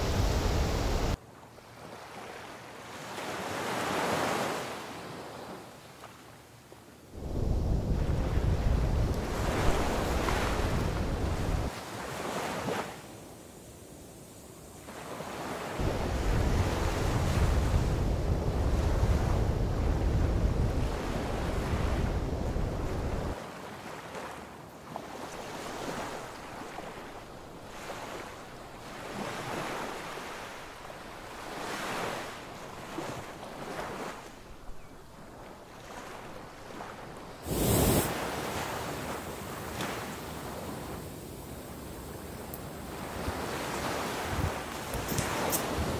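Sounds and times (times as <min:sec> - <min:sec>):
sea surf breaking on shore: 0:00.0 - 0:01.2, 0:07.2 - 0:13.1, 0:14.8 - 0:34.6, 0:35.3 - 0:45.9
wind buffeting microphone: 0:07.2 - 0:11.7, 0:15.8 - 0:23.4.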